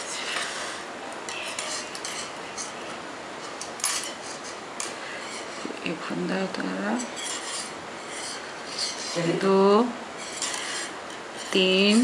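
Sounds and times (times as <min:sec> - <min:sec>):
yarn rubbing: 0:06.7 - 0:12.0.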